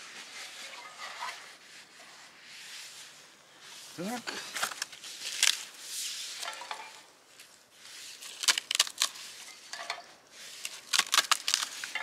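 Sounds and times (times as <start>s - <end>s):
bark and twigs crackling and snapping: 4.3s - 5.8s, 7.3s - 12.0s.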